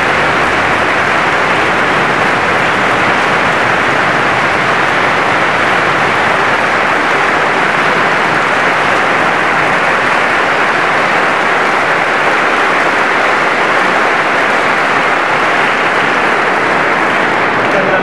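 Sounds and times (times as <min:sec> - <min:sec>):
congregation applauding: 0:00.0 - 0:18.0.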